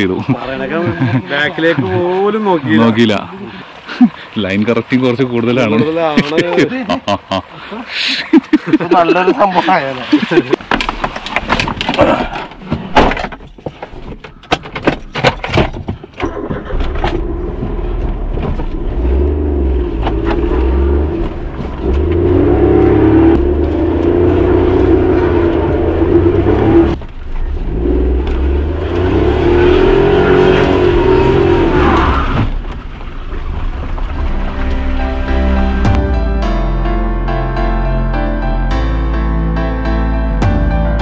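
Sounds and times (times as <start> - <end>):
engine running steadily: 16.2 - 31.7.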